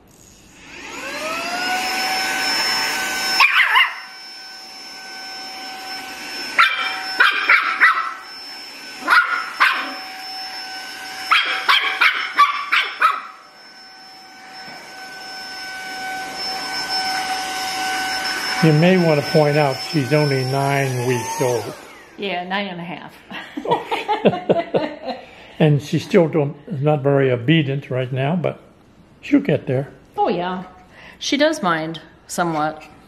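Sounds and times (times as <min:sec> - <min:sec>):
vacuum cleaner motor whine: 0:00.0 - 0:22.7
puppy yapping: 0:03.4 - 0:04.1, 0:06.6 - 0:08.2, 0:09.0 - 0:10.0, 0:11.3 - 0:13.4.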